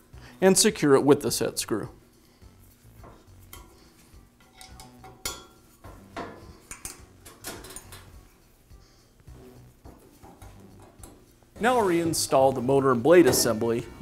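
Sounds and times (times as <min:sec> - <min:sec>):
light metallic clicks and clinks: 0:04.4 - 0:05.6, 0:06.6 - 0:08.2.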